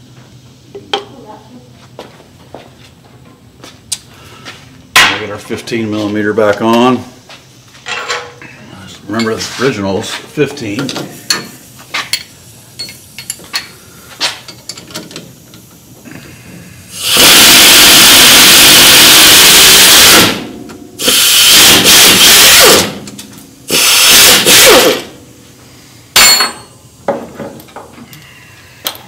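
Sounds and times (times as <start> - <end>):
power wrench spinning: 16.9 - 18.2, 19.2 - 23.0, 23.7 - 25.2.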